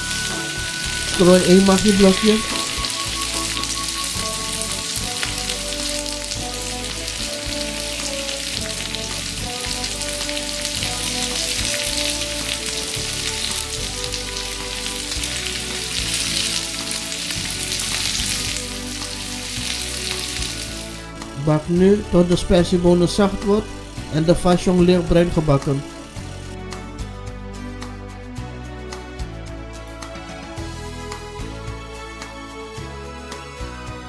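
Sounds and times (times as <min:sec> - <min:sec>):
food sizzling in a wok: 0:00.0 - 0:27.9.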